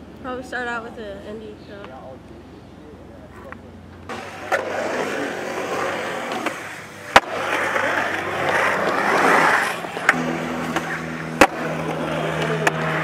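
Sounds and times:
skateboard wheels rolling on concrete: 0:00.0 - 0:13.0
skateboard clack: 0:03.3 - 0:13.0.

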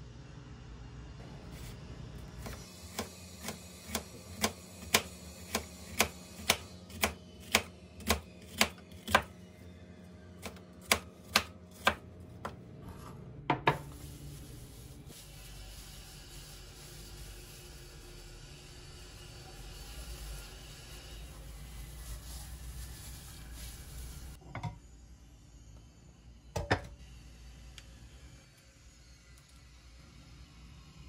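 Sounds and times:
knife slicing onion on board: 0:02.4 - 0:09.3, 0:10.4 - 0:13.9.

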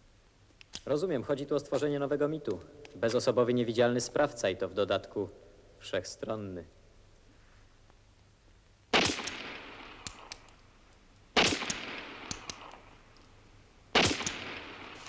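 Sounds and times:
sharp bangs with crackling decay: 0:08.9 - 0:10.6, 0:11.3 - 0:13.2, 0:13.9 - 0:15.0.

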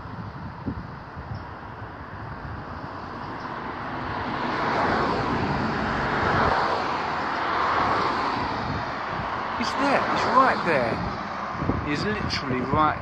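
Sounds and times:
vehicle passing on road: 0:00.0 - 0:13.0.

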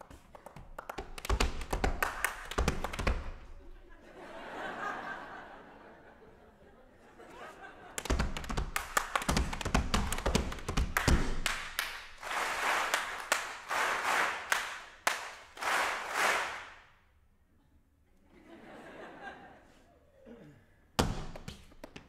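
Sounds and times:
performer clapping and stomping: 0:00.0 - 0:03.5, 0:07.9 - 0:16.9, 0:21.0 - 0:22.0
audience clapping: 0:00.0 - 0:03.6, 0:07.8 - 0:17.0.

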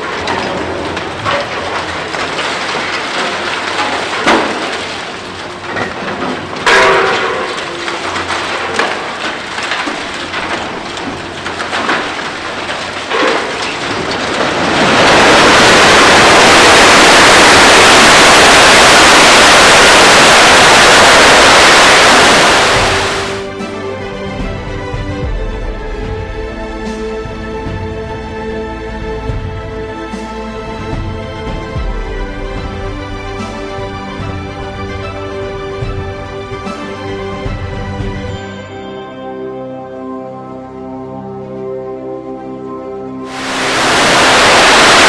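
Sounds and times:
excavator breaking concrete: 0:00.0 - 0:23.5
sharp cracks: 0:00.0 - 0:23.5
debris crunching and clattering: 0:00.0 - 0:23.6, 0:30.1 - 0:38.4, 0:43.3 - 0:45.0
falling concrete and rubble crash: 0:00.0 - 0:23.6, 0:30.8 - 0:38.5, 0:43.3 - 0:45.0.

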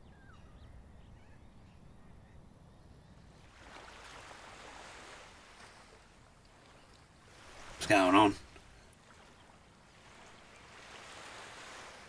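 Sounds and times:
faint outdoor ambience: 0:00.0 - 0:12.0
sea surf on the shore: 0:03.4 - 0:12.0.

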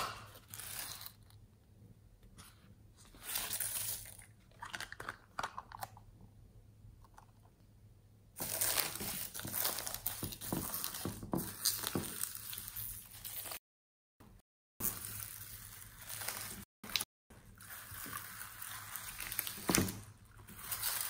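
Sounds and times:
foam beads and sequins crackling: 0:17.6 - 0:21.0.

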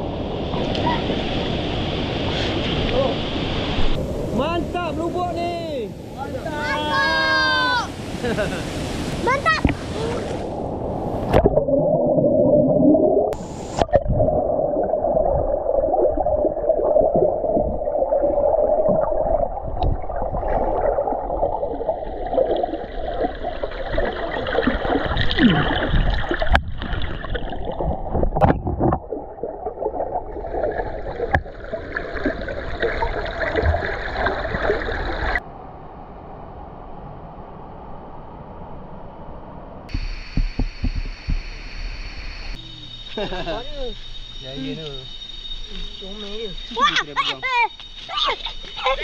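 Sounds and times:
sharp underwater knocks: 0:23.9 - 0:29.2, 0:39.9 - 0:41.5.

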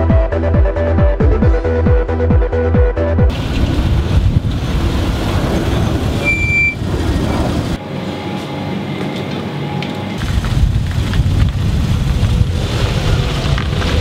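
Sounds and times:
wind noise: 0:03.3 - 0:07.9, 0:09.5 - 0:14.0
car engine rumbling: 0:03.3 - 0:14.0
short high beep: 0:06.2 - 0:06.8.

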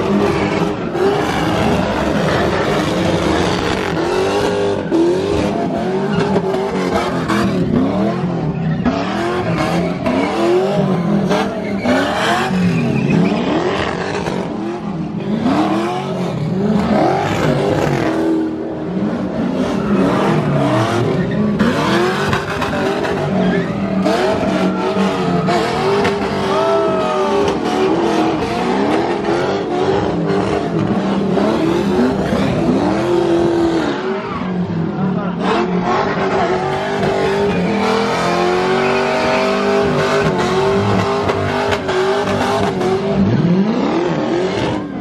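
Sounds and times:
tyres squealing: 0:00.0 - 0:14.6, 0:19.6 - 0:34.6
car engines revving: 0:00.0 - 0:45.0.

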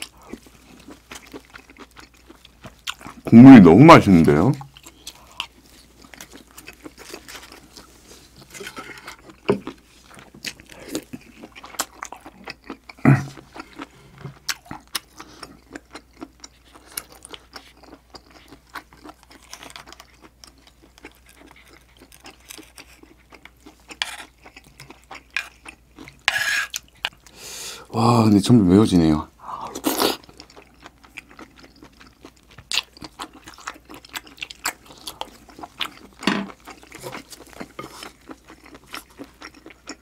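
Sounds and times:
chewing and mouth sounds: 0:00.0 - 0:27.4, 0:29.5 - 0:40.0.

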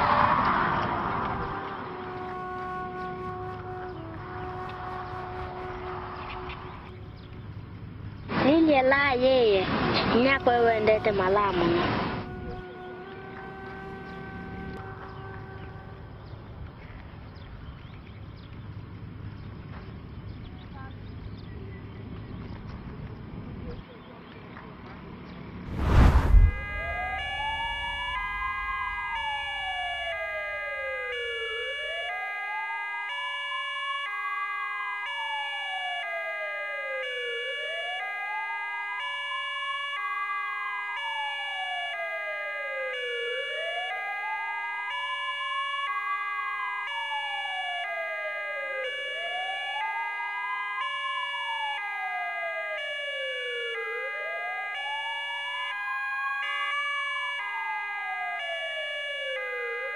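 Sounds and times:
ambulance siren wailing: 0:00.0 - 0:07.4, 0:10.2 - 0:16.2, 0:26.4 - 0:59.9.

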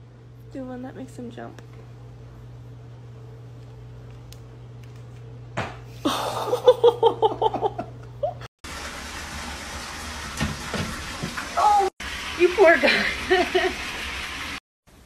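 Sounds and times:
water rushing in toilet: 0:08.6 - 0:14.6.

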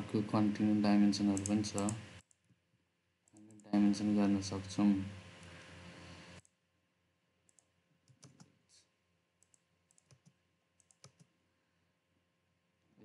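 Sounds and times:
computer mouse and keyboard clicks: 0:01.3 - 0:02.6, 0:07.5 - 0:08.5, 0:09.4 - 0:11.3.

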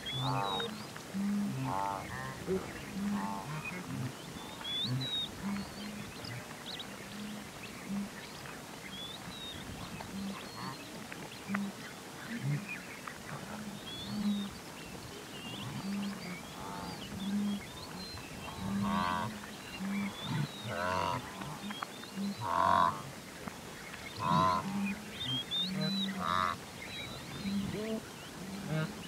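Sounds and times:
birds chirping: 0:00.0 - 0:23.0, 0:23.7 - 0:29.0
wildebeest nasal honking calls: 0:00.1 - 0:06.1, 0:15.5 - 0:17.7, 0:18.5 - 0:23.0, 0:24.2 - 0:26.6, 0:27.4 - 0:29.0.

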